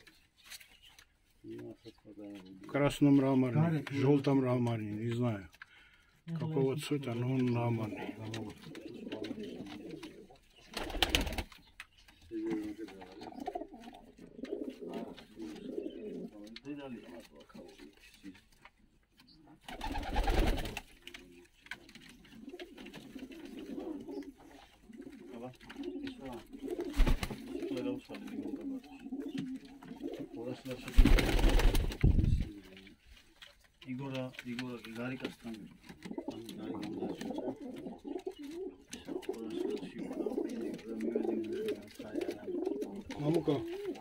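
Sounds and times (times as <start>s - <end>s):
pigeons cooing: 7.0s - 18.3s, 19.4s - 32.8s, 35.4s - 44.0s.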